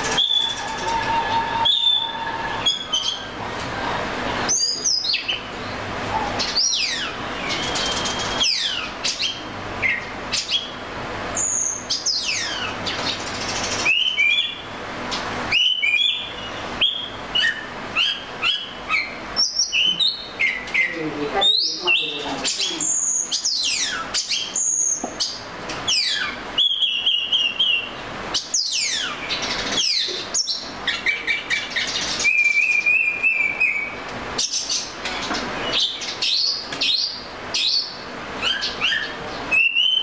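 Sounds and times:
bird singing whistles: 0.1s - 3.2s, 6.6s - 10.7s, 13.8s - 14.7s, 15.5s - 22.1s, 25.9s - 27.9s, 28.6s - 34.0s, 35.6s - 40.0s.

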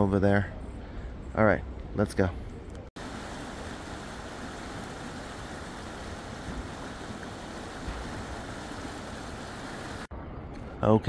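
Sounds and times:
creek water rushing over gravel: 3.0s - 10.1s.

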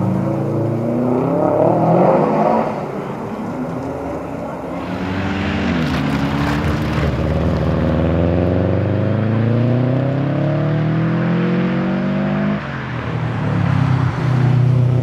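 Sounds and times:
car engine accelerating hard: 0.0s - 15.0s.

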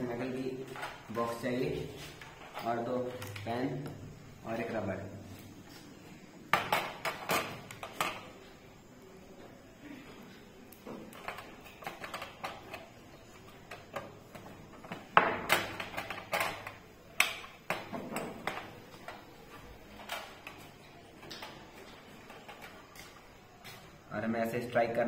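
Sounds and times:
plastic pens clicking and knocking: 10.7s - 23.2s.

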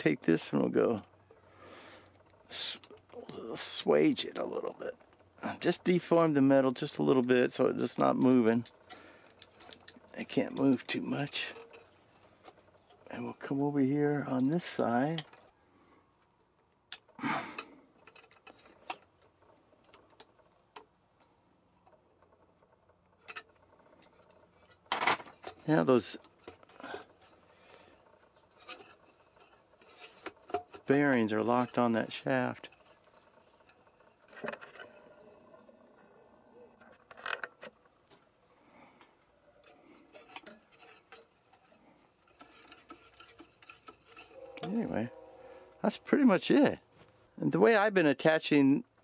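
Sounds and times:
propeller turning on shaft: 0.0s - 47.6s
light clicks and rattles: 0.0s - 49.0s
wooden toy clattering: 4.3s - 15.6s, 16.4s - 21.0s, 21.8s - 46.1s
faint rubbing: 38.4s - 46.3s.

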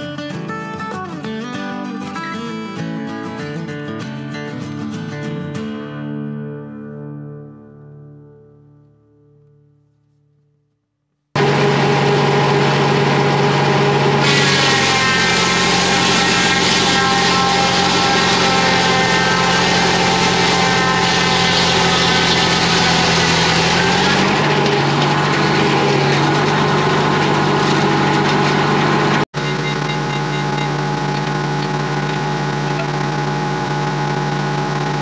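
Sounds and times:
circular saw blade cutting log: 11.4s - 35.0s
engine running steadily: 11.4s - 35.0s.

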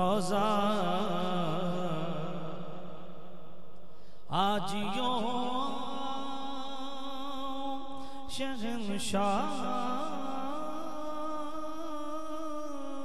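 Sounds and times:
man singing into microphone: 0.0s - 2.8s, 4.3s - 13.0s.

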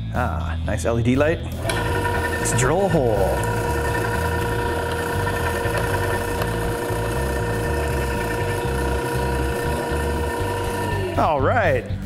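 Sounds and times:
drill press motor whining: 1.5s - 11.4s
drill bit boring into wood: 1.6s - 11.2s.

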